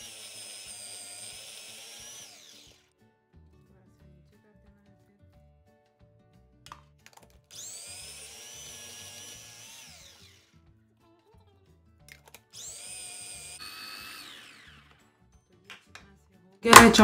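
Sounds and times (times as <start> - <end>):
electric food chopper motor whine: 0.0 - 2.9, 7.5 - 10.6, 12.3 - 15.2.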